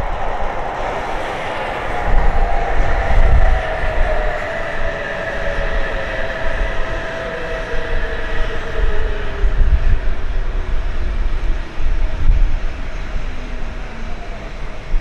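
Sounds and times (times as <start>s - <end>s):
train whine dropping in pitch: 0.0s - 11.3s
train rumbling on track: 0.0s - 15.0s.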